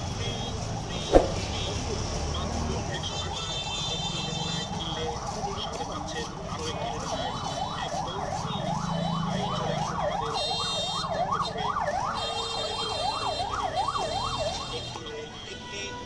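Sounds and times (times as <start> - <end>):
siren yelping: 6.8 - 15.0.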